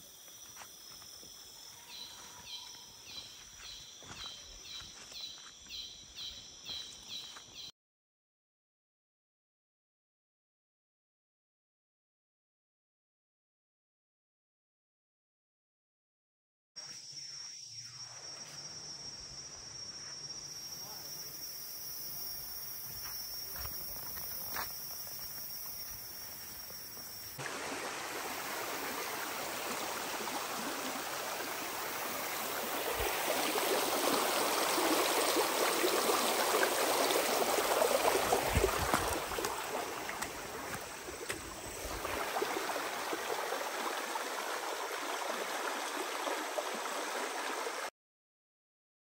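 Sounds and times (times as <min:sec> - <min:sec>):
insects trilling: 0:00.0 - 0:07.6, 0:16.8 - 0:43.8
high-pitched insect drone: 0:16.8 - 0:27.4
footsteps crunching in leaves: 0:38.0 - 0:42.1.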